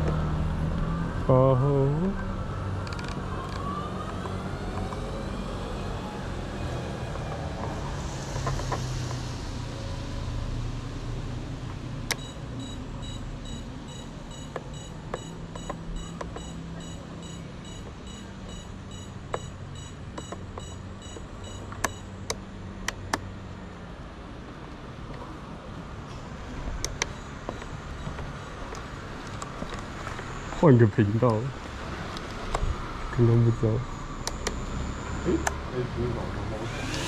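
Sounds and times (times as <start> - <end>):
sharp clicks: 12.0 - 23.3, 26.8 - 30.6, 34.2 - 34.6
rapid electronic beeping: 12.2 - 22.2.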